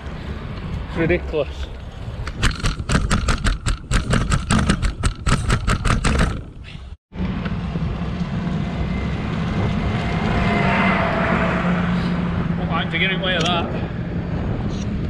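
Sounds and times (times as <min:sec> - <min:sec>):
bicycle rattling over rough path: 0:01.8 - 0:07.0.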